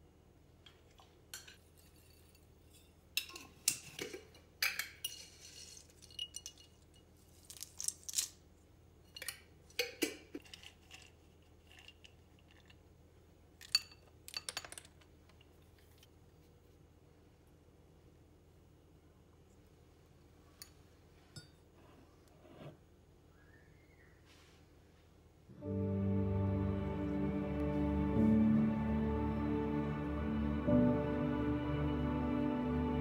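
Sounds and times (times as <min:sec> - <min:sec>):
dishes and cutlery clinking: 0:01.3 - 0:07.1.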